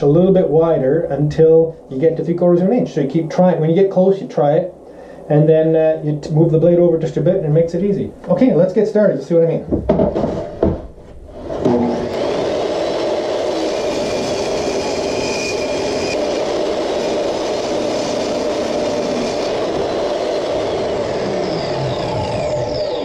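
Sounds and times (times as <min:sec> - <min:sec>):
table saw cutting wood: 0:11.3 - 0:23.0.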